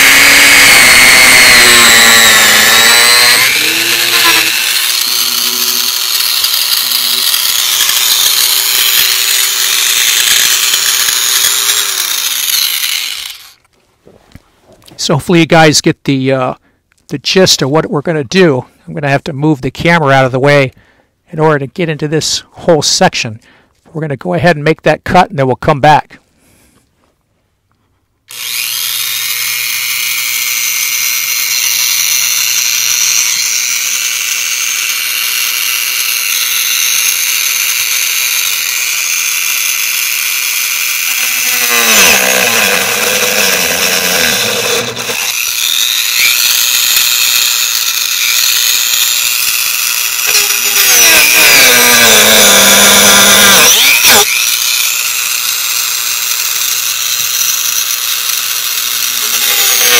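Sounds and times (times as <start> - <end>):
rotary tool whining while cutting plastic: 0.0 - 13.7, 28.3 - 59.9.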